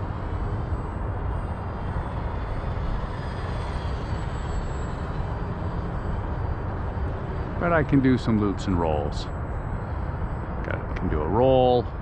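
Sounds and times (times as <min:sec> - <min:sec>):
model plane motor whine: 0:00.0 - 0:07.6.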